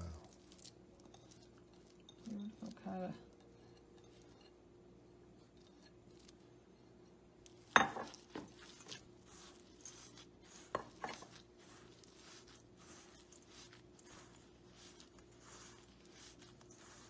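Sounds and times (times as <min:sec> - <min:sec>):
hands squishing dough: 0:00.0 - 0:03.0, 0:07.4 - 0:17.0.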